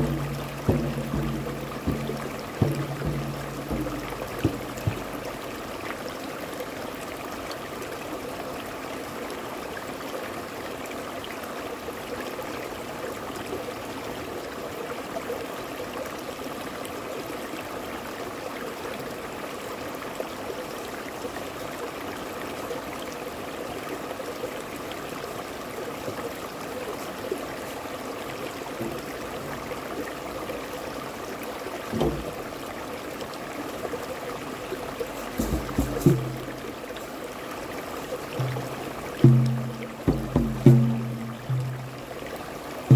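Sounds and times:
low thump: 0:00.0 - 0:05.7, 0:31.9 - 0:32.4, 0:35.0 - 0:36.7, 0:38.4 - 0:42.0
stream flowing over rocks: 0:00.0 - 0:42.9.

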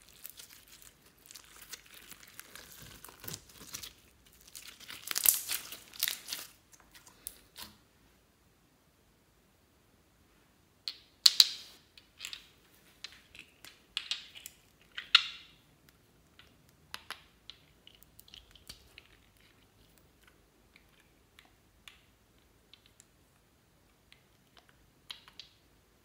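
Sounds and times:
slime squelching and crackling: 0:00.0 - 0:07.7.

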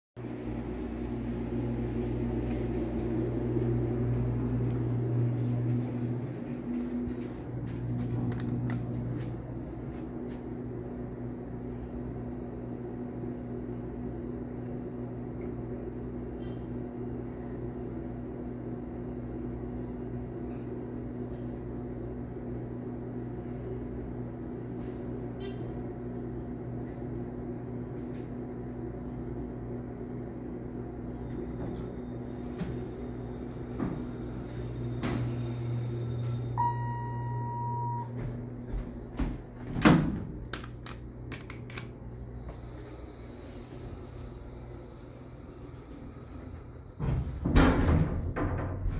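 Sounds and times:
elevator hum: 0:00.2 - 0:48.9
elevator tone: 0:21.1 - 0:38.7
elevator doors sliding open: 0:31.4 - 0:37.6, 0:43.2 - 0:48.9.

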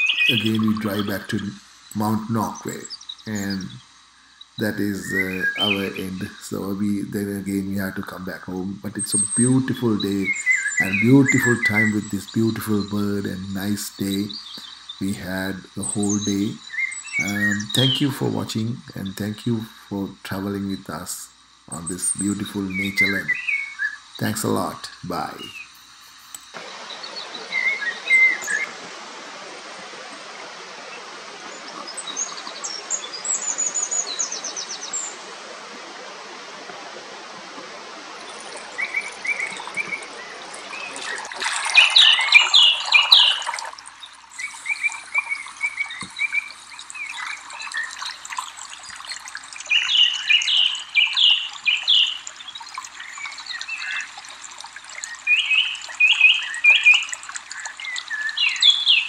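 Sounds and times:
songbirds chirping: 0:00.0 - 0:28.8, 0:29.7 - 0:35.4, 0:38.0 - 0:59.0
running water: 0:00.0 - 0:59.0.

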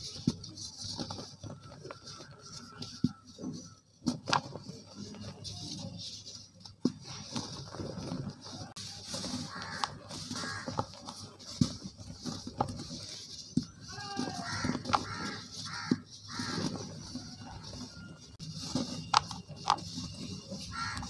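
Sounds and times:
harsh animal calls: 0:09.4 - 0:10.8, 0:14.1 - 0:17.0, 0:20.7 - 0:21.0.

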